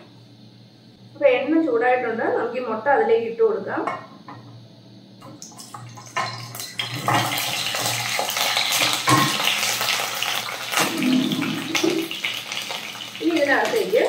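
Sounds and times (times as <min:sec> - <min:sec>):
oil sizzling and crackling: 0:05.2 - 0:14.0.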